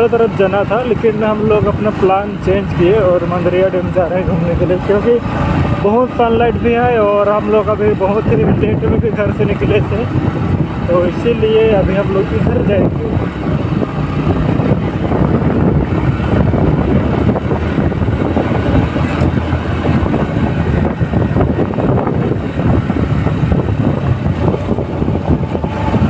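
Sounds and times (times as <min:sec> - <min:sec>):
motorcycle engine running: 0:00.0 - 0:26.0
wind buffeting microphone: 0:00.0 - 0:26.0.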